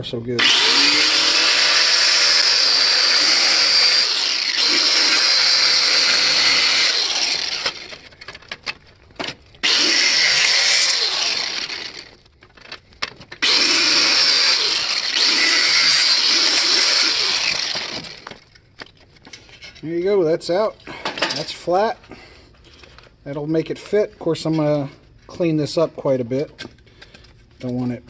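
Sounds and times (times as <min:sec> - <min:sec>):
angle grinder cutting plastic: 0:00.4 - 0:08.2, 0:09.6 - 0:12.2, 0:13.4 - 0:18.4.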